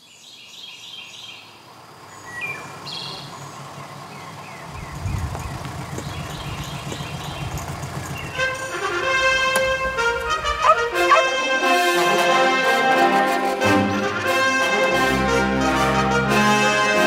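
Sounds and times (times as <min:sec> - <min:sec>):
birds chirping: 0:00.0 - 0:12.4
taxi engine rumble: 0:01.6 - 0:16.8.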